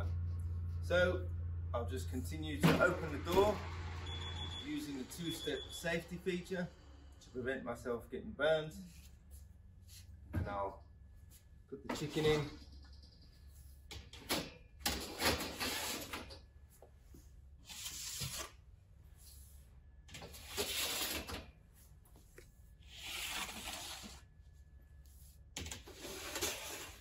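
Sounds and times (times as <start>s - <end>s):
low steady hum: 0.0s - 20.7s.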